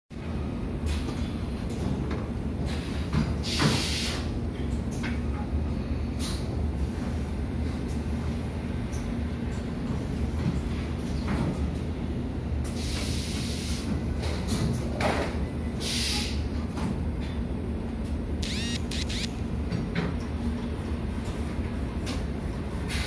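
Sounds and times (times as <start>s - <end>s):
machinery humming: 18.4s - 19.7s.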